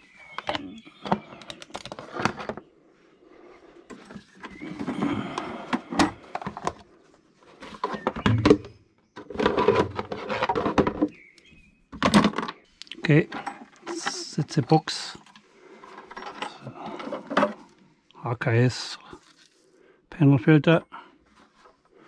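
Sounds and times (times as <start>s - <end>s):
hard plastic parts knocking and scraping: 0.0s - 2.7s, 3.5s - 11.3s, 11.9s - 17.7s.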